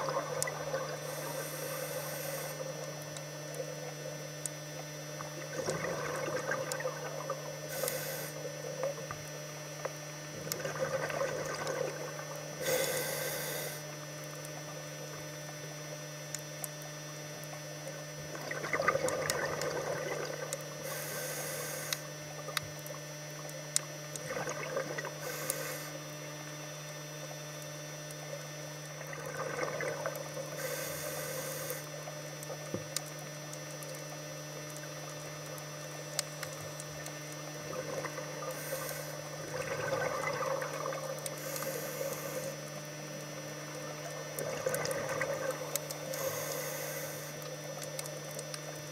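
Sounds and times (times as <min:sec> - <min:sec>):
exhaled bubbles gurgling: 0:00.0 - 0:48.9
steady low hum: 0:00.0 - 0:48.9
regulator inhale hiss: 0:01.0 - 0:02.8, 0:07.7 - 0:08.5, 0:12.6 - 0:14.0, 0:20.8 - 0:22.1, 0:25.2 - 0:26.0, 0:30.5 - 0:32.0, 0:38.4 - 0:39.3, 0:41.3 - 0:42.6, 0:46.0 - 0:47.5.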